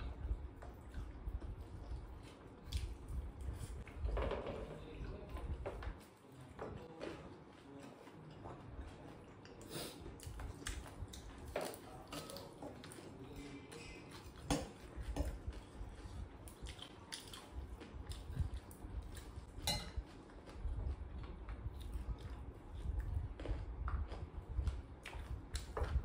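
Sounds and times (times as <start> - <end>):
chewing: 0.1 - 4.0, 6.0 - 26.0
spoon clinking on glass bowls: 19.6 - 20.0.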